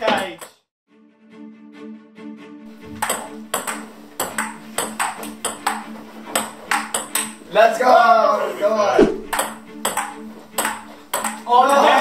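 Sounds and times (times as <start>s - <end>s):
table tennis ball clicking: 3.0s - 7.4s, 9.3s - 11.5s.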